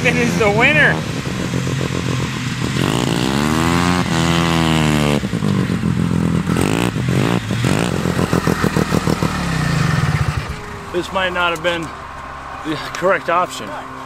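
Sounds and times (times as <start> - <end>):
snowmobile engine revving: 0.0 - 14.0.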